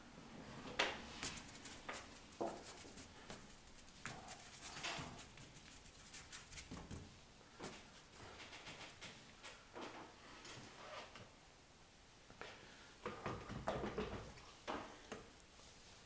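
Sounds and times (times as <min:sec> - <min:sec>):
paintbrush strokes on paper: 0:01.1 - 0:07.0.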